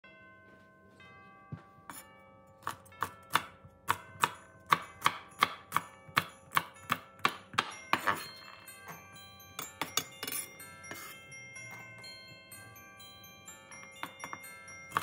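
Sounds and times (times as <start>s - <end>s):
knife chopping on wooden board: 2.6s - 8.3s.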